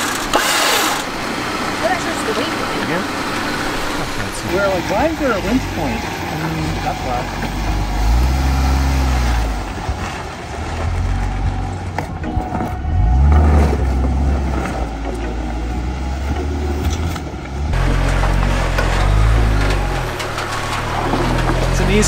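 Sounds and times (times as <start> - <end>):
truck engine revving under load: 0.0 - 22.0.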